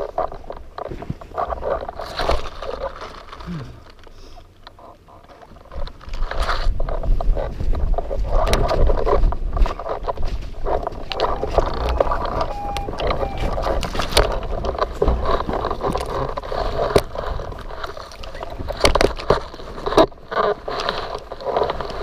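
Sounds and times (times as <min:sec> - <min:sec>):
sharp flaps and knocks: 0:05.5 - 0:22.0
wind buffeting microphone: 0:05.5 - 0:22.0.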